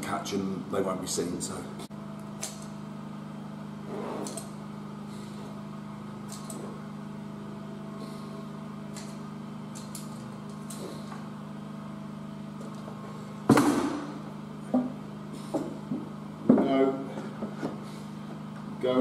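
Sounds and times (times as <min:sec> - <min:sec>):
steady low hum: 0:00.0 - 0:19.0
loud sharp knock: 0:13.5 - 0:14.2.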